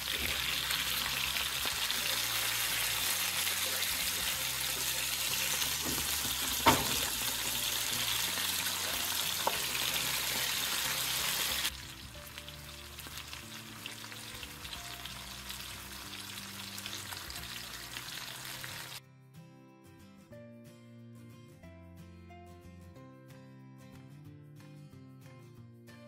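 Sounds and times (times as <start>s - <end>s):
fish sizzling in oil: 0.0s - 19.0s
spatula knocking pan: 5.8s - 7.5s.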